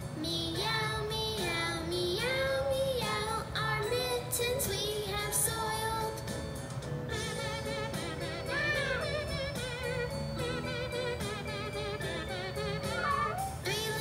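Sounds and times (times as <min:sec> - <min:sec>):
musical accompaniment: 0:05.8 - 0:14.0.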